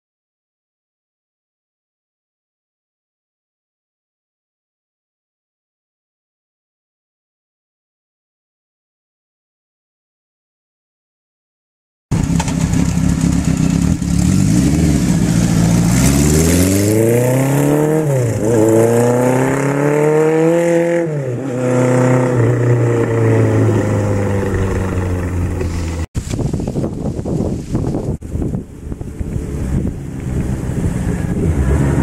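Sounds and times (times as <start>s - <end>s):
motorcycle engine accelerating: 12.1s - 32.0s.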